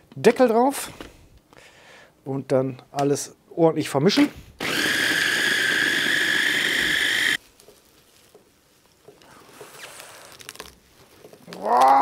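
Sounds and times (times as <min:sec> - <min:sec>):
electric food chopper whining: 0:04.6 - 0:07.4
rustling of plastic bag: 0:07.4 - 0:12.0.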